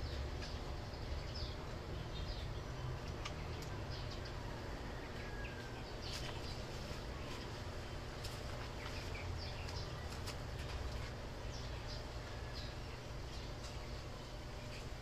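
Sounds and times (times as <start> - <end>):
birds chirping: 0.0 - 15.0.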